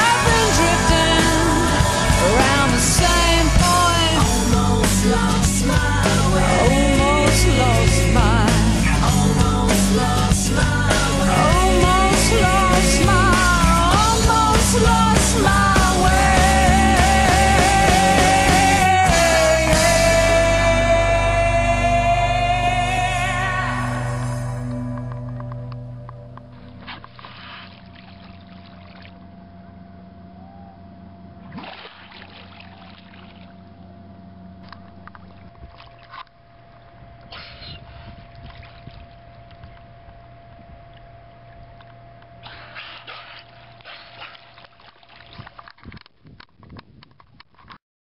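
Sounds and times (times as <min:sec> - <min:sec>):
boat motor running: 0:00.0 - 0:47.7
water splashing against hull: 0:26.5 - 0:29.5, 0:31.4 - 0:47.7.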